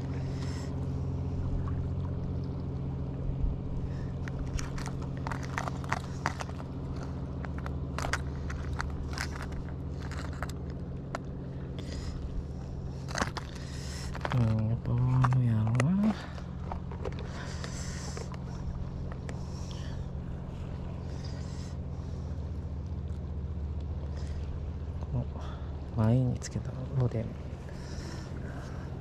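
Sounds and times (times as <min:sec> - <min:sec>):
steady low hum: 0:00.0 - 0:29.0
fishing tackle clicking and rattling: 0:04.2 - 0:11.3, 0:13.0 - 0:18.4.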